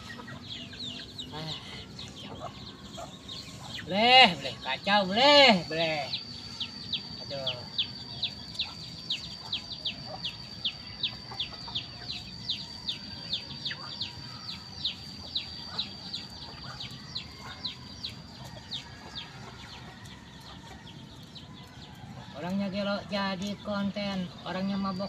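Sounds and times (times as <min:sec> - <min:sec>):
steady high whine: 0:00.0 - 0:18.4
rapid high-pitched chirping: 0:00.0 - 0:25.0.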